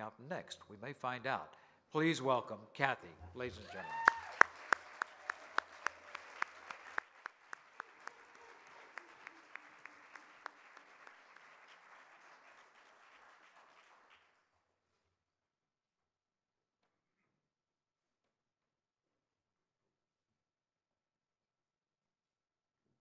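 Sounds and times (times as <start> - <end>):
audience applauding: 3.4 - 14.6.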